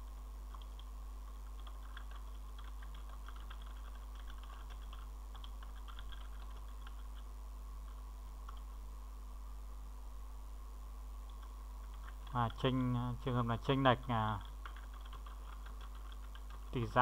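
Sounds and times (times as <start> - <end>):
steady low hum: 0.0 - 17.0
keyboard typing clicks: 0.5 - 0.9, 1.5 - 7.2, 11.3 - 12.6, 14.4 - 16.8.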